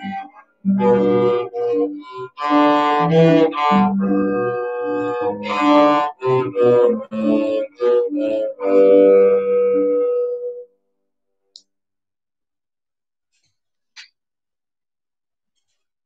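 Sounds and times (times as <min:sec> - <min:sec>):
solo cello melody: 0:00.0 - 0:10.7.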